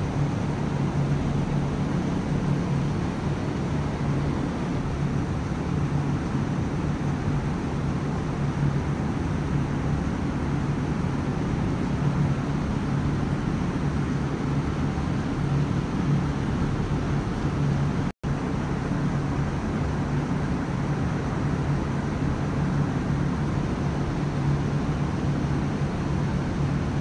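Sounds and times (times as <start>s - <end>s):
low hum: 0.0s - 9.5s
droning hiss: 0.0s - 27.0s.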